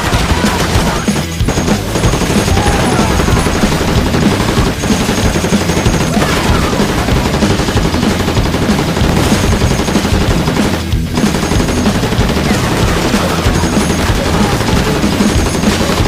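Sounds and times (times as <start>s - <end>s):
rifle and machine-gun fire: 0.0s - 16.0s.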